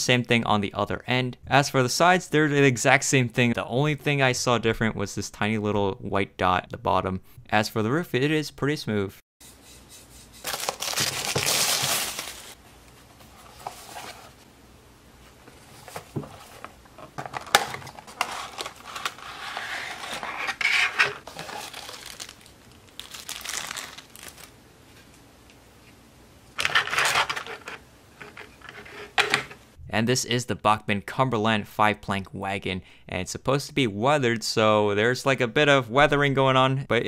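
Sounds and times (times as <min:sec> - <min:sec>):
crinkling and rustling: 0:10.4 - 0:14.5, 0:15.2 - 0:25.2, 0:26.6 - 0:29.6
plastic wrapper tearing: 0:10.5 - 0:12.6, 0:21.2 - 0:24.6.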